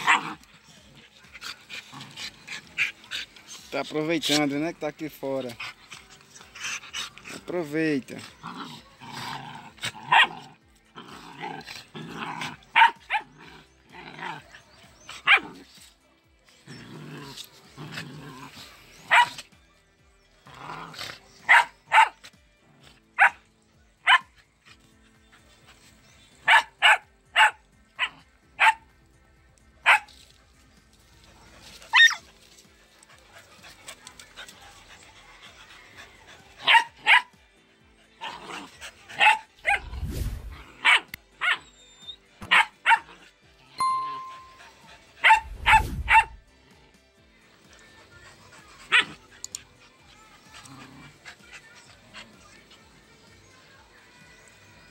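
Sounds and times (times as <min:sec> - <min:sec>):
dogs yipping and barking: 0:00.0 - 0:04.5, 0:05.2 - 0:07.5, 0:08.1 - 0:15.8, 0:16.5 - 0:19.6, 0:20.3 - 0:28.9, 0:29.8 - 0:46.5, 0:47.8 - 0:53.3
dogs growling: 0:00.0 - 0:28.8, 0:29.9 - 0:43.6, 0:47.7 - 0:53.4.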